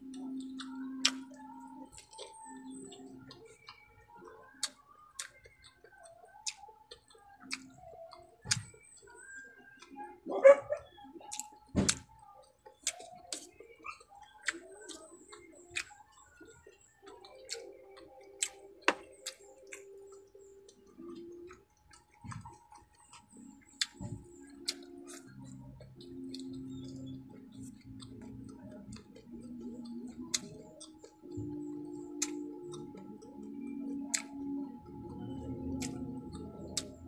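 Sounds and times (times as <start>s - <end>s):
fingers picking at food on plate: 0.0s - 10.1s, 10.8s - 37.0s
chewing: 0.0s - 37.0s
wet mouth clicks and lip smacks: 20.8s - 33.3s, 33.9s - 34.5s, 35.7s - 37.0s.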